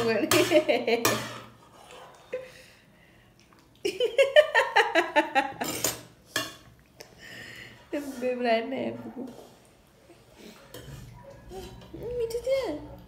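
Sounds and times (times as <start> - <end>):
woman laughing: 3.8 - 5.7.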